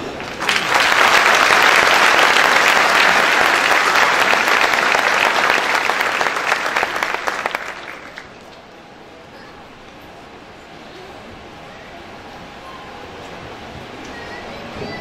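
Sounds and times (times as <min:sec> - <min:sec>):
audience applauding: 0:00.0 - 0:08.5.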